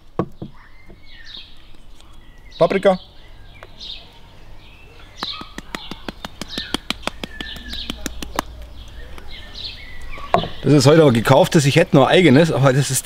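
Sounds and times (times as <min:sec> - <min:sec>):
small birds chirping: 0:00.0 - 0:13.0
fast sharp clicks: 0:05.2 - 0:09.0.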